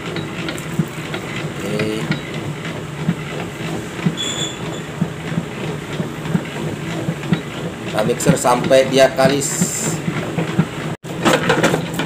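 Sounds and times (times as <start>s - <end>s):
dough mixer motor humming: 0.0s - 12.0s.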